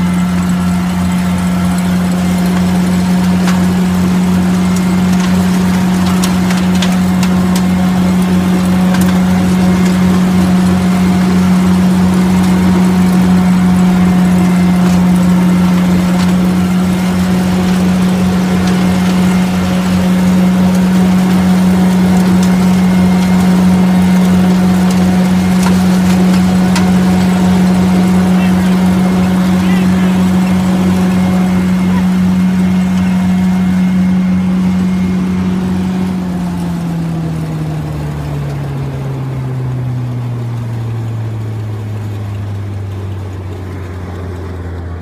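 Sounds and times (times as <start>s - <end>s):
lawn vacuum humming: 0.0s - 45.0s
leaves crackling through hose: 0.0s - 45.0s.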